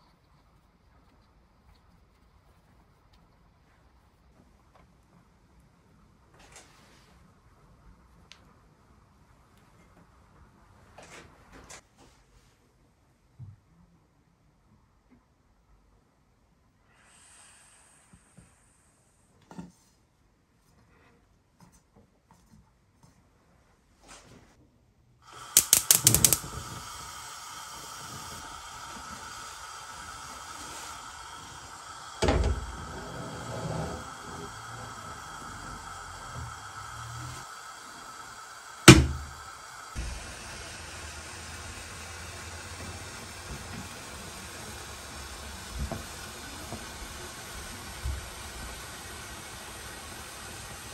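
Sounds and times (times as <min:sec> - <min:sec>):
burner flame hissing: 0:16.9 - 0:19.3, 0:25.2 - 0:50.9
gas hob igniter clicking: 0:25.3 - 0:40.7.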